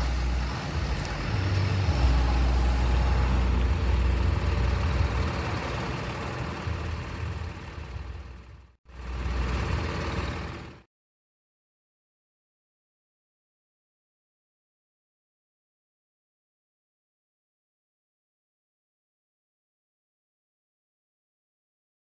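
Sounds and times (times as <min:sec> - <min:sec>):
diesel truck engines droning: 0:00.0 - 0:10.9.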